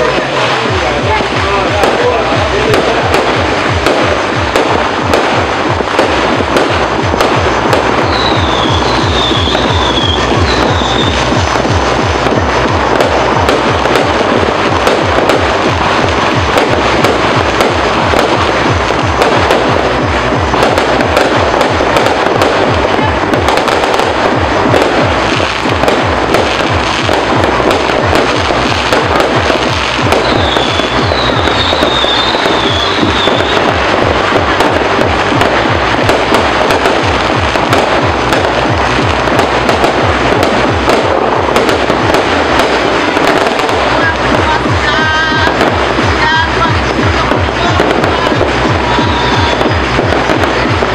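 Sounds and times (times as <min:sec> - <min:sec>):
fireworks crackling and banging: 0:00.0 - 0:50.9.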